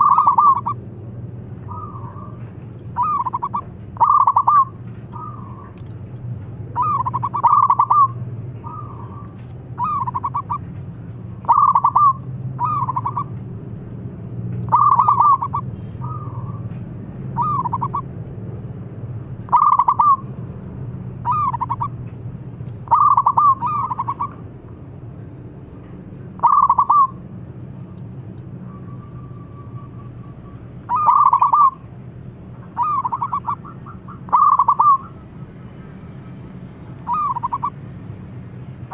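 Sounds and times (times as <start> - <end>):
dove cooing trilled notes: 0.0 - 0.9, 1.6 - 5.9, 6.7 - 10.7, 11.4 - 13.4, 14.7 - 16.6, 17.4 - 18.1, 19.5 - 20.3, 21.2 - 22.0, 22.8 - 24.4, 26.3 - 27.2, 28.6 - 31.9, 32.6 - 35.5, 37.0 - 37.8.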